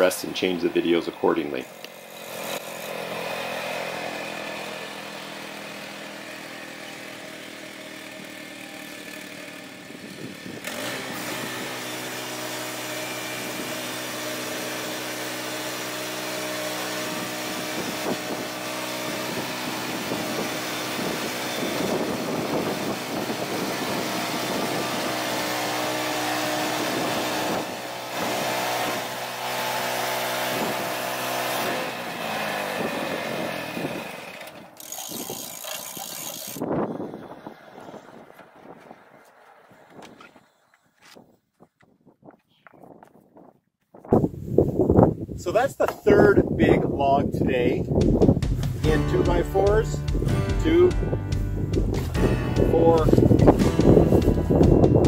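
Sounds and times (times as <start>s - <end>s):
small gasoline engine running: 0.5s - 39.9s, 51.7s - 55.0s
band blade cutting log: 1.7s - 8.1s, 10.6s - 36.8s.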